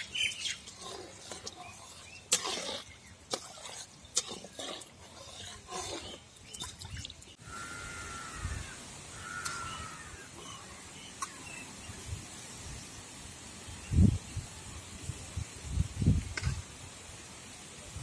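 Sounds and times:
metal spatula scraping in a pan: 0:00.0 - 0:06.6
bird calling: 0:06.0 - 0:11.8
faint steady hiss: 0:07.4 - 0:18.0.

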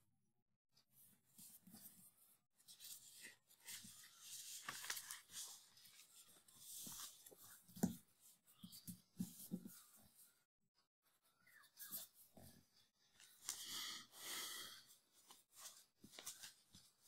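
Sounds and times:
paper sheets rustling: 0:02.7 - 0:07.4, 0:15.3 - 0:17.0.

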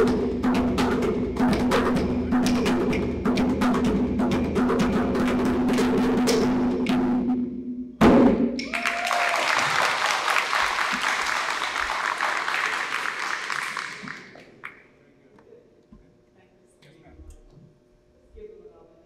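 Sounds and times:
djembe drumming: 0:00.0 - 0:06.8
audience applause: 0:08.6 - 0:14.8.

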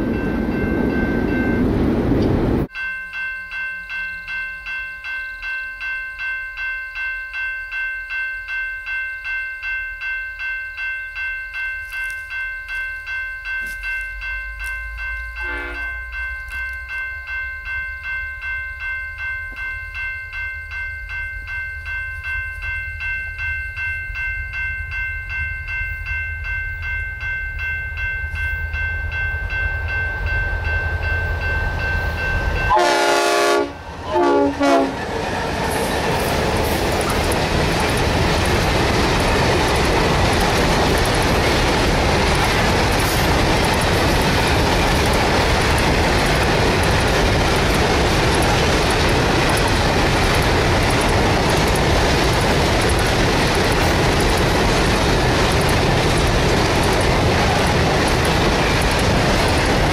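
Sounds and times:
train wheels rolling on rails: 0:00.0 - 0:02.7, 0:11.8 - 0:59.9
locomotive engine rumble: 0:00.2 - 0:02.7
train horn blasts: 0:15.4 - 0:15.9, 0:32.7 - 0:35.1.

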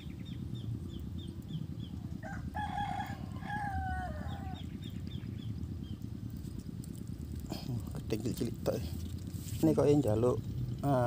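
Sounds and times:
small bird chirping: 0:00.0 - 0:02.4, 0:03.4 - 0:11.0
steady low rumble: 0:00.0 - 0:11.0
rooster crowing: 0:02.2 - 0:04.7.

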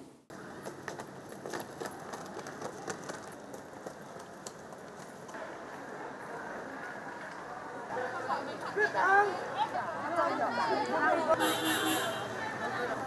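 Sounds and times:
suitcase wheels rattling on paving: 0:00.3 - 0:05.4
wheels clicking over tile joints: 0:00.3 - 0:05.4.

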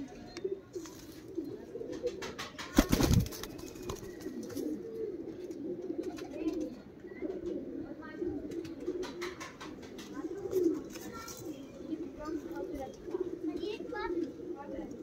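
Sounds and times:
pigeons cooing: 0:00.0 - 0:15.0
wings flapping: 0:02.0 - 0:04.8, 0:09.0 - 0:10.2.

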